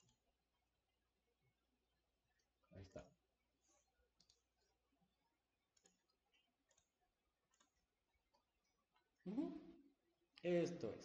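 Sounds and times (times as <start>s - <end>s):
computer mouse clicks: 4.2s - 4.7s, 5.7s - 8.4s.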